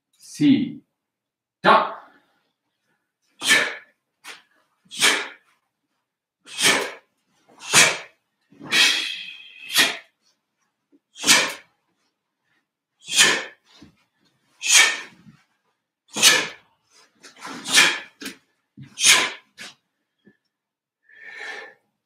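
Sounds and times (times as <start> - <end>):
person exhaling sharply: 3.4 - 5.4, 6.5 - 7.0, 7.6 - 10.1, 11.2 - 11.6, 13.0 - 13.6, 14.6 - 15.2, 16.1 - 16.6, 17.4 - 18.3, 19.0 - 19.6, 21.1 - 21.8.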